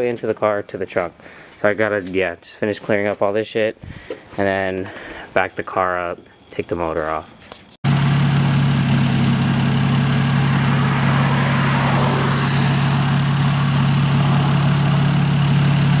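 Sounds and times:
car engine idling: 7.9 - 16.0.

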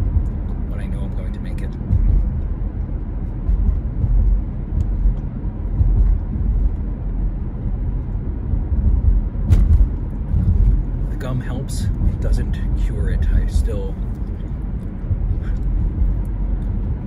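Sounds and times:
car road and engine rumble: 0.0 - 17.0.

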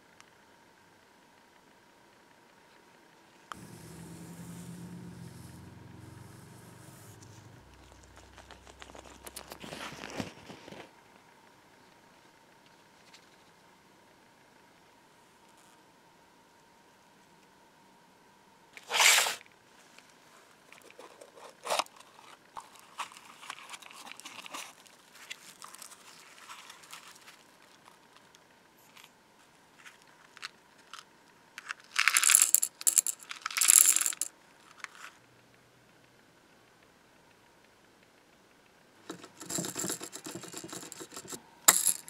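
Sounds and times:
metal eyelets pouring into hopper: 32.0 - 34.3, 39.1 - 42.0
sharp clatter: 39.1 - 42.0.

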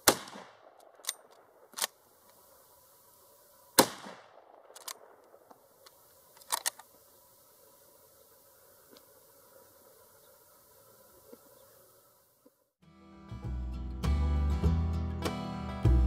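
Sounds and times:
rifle shot with echo: 0.0 - 2.0, 3.8 - 5.9.

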